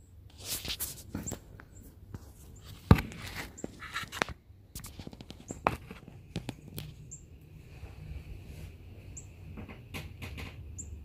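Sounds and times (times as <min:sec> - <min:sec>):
steady low rumble: 0:05.9 - 0:11.0
high bird chirps: 0:07.0 - 0:07.4, 0:09.1 - 0:09.4, 0:10.7 - 0:11.0.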